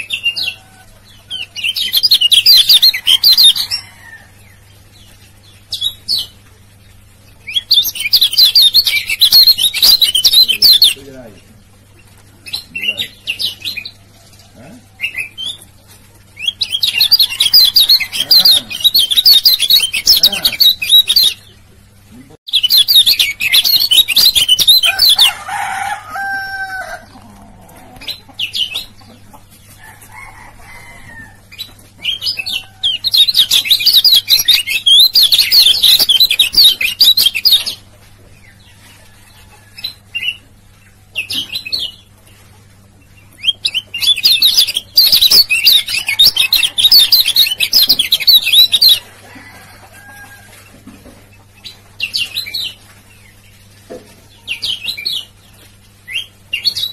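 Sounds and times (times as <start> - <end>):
bird high twittering song: 1.2 - 11.2, 16.4 - 21.6, 22.5 - 25.4, 31.5 - 37.8, 43.2 - 49.1.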